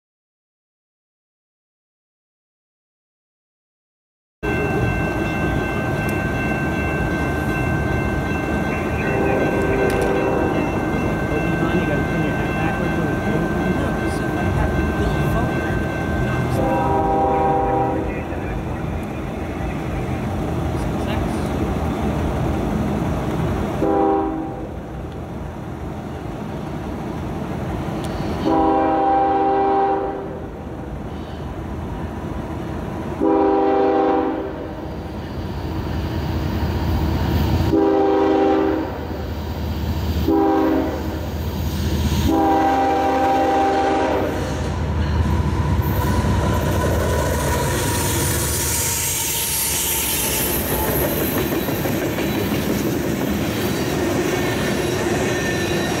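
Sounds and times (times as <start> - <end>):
locomotive engine: 4.4 - 29.5, 39.0 - 56.0
train wheels clacking on rails: 4.5 - 22.5, 41.7 - 56.0
locomotive air horn: 9.2 - 10.6, 16.6 - 18.1, 23.8 - 24.8, 28.4 - 30.5, 33.2 - 34.8, 37.7 - 39.1, 40.2 - 41.2, 42.2 - 44.7.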